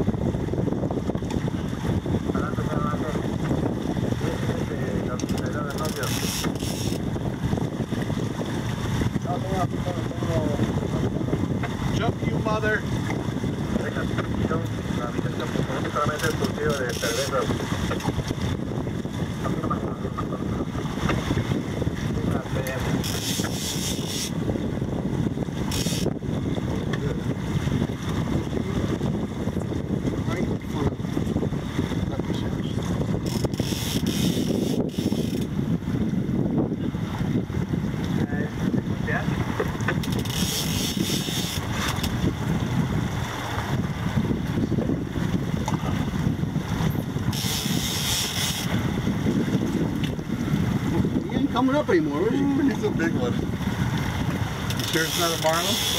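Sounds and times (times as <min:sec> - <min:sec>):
outboard motors running: 0:00.0 - 0:55.9
water rushing: 0:00.0 - 0:55.9
wind buffeting microphone: 0:00.0 - 0:55.9.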